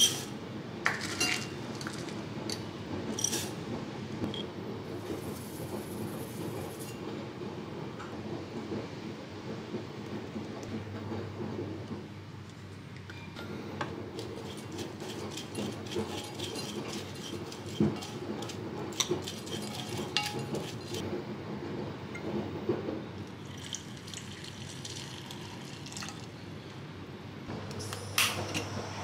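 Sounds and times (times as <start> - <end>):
spoon scraping glass saucepan: 14.2 - 21.0
water pouring into pan: 23.4 - 26.3.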